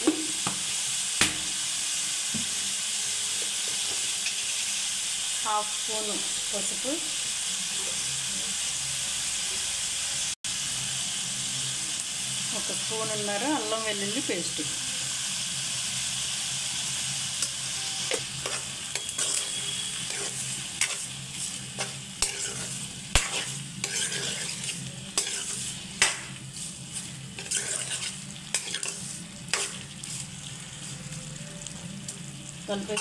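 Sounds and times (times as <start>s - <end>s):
meat sizzling in oil: 0.0s - 33.0s
metal spatula scraping pan: 17.8s - 30.3s.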